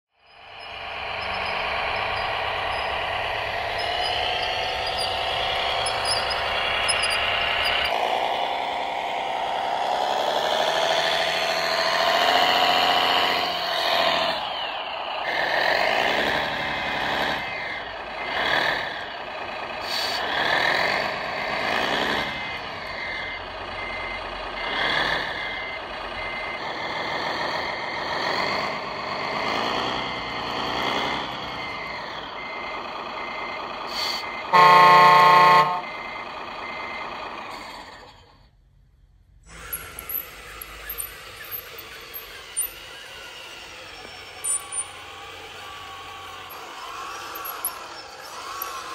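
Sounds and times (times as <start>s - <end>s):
high beeping: 0.2s - 37.4s, 39.5s - 48.9s
toy tractor engine sound revving: 0.2s - 38.6s, 39.4s - 48.9s
horn blast: 34.5s - 36.0s.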